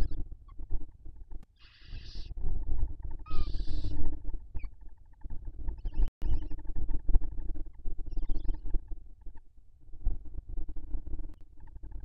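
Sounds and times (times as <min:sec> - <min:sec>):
owl hissing: 0:01.6 - 0:02.3, 0:03.3 - 0:04.1.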